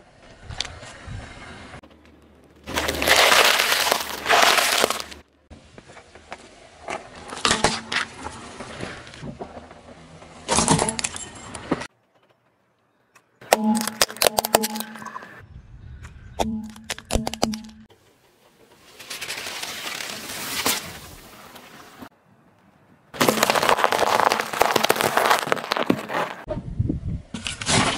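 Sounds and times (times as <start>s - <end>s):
tyre crushing lettuce: 2.6s - 5.2s, 23.2s - 26.4s.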